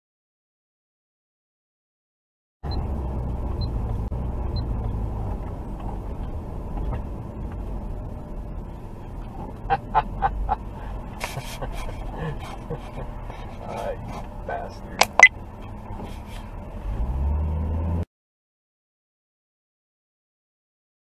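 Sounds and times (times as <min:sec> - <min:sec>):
car engine and tyres rumble: 0:02.6 - 0:18.1.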